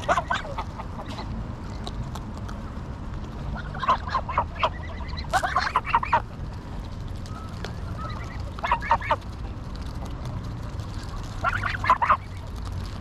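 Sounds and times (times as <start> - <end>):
geese cackling calls: 0.0 - 1.3, 3.5 - 6.4, 7.8 - 9.2, 11.2 - 12.5
steady low rumble: 0.0 - 13.0.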